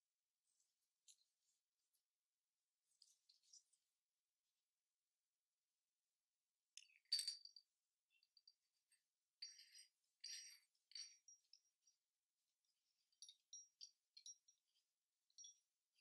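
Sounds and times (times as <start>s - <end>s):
metal clinks and scrapes: 2.9s - 3.9s, 6.8s - 12.0s.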